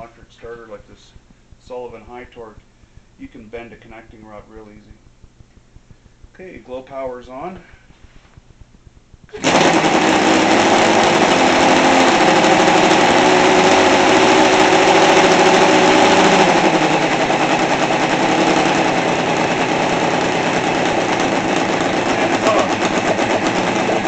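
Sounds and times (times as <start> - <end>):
model engine running with propeller: 9.3 - 24.0.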